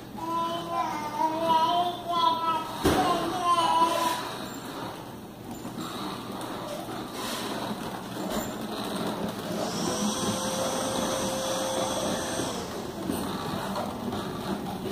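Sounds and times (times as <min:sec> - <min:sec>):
toy car wheels rolling on tile: 0:03.5 - 0:14.9.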